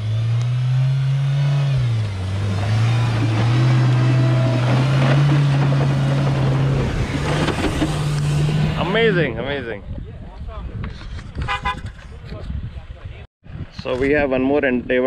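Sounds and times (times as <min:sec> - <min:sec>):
engine revving hard: 0:00.0 - 0:09.2.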